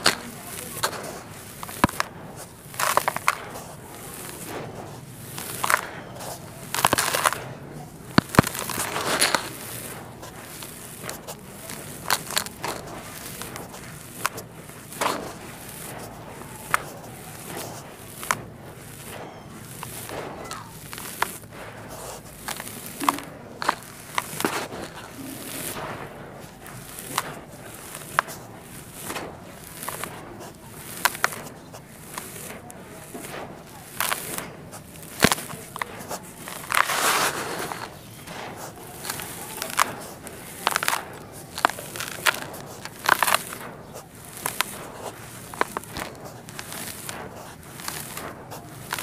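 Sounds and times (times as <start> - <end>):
dirt lumps crunching and breaking: 0.0 - 49.0
dry dirt pouring into plastic tub: 26.4 - 43.6, 44.3 - 49.0.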